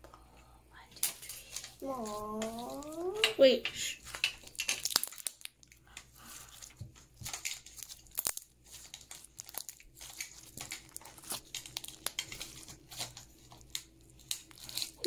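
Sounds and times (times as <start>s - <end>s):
slime crackling and snapping: 4.0s - 15.0s.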